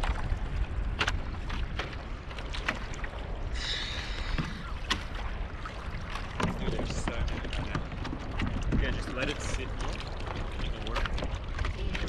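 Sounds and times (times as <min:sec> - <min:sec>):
water lapping against kayak: 0:00.0 - 0:12.0
wind on microphone: 0:00.0 - 0:12.0
hiss of water: 0:03.5 - 0:04.8.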